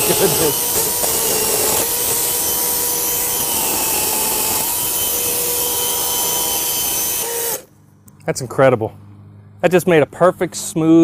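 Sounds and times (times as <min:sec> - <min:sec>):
electric chainsaw motor whine: 0:00.0 - 0:07.7.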